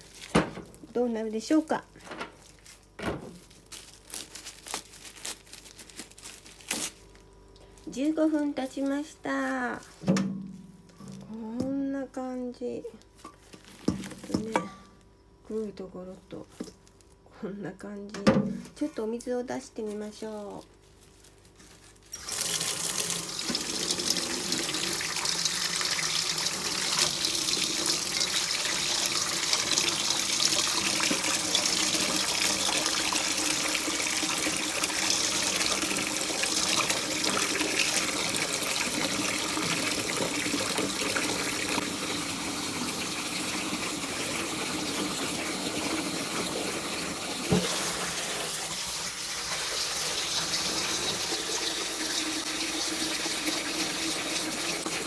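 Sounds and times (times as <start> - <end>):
tap water splashing into sink: 22.5 - 42.0, 45.9 - 48.4.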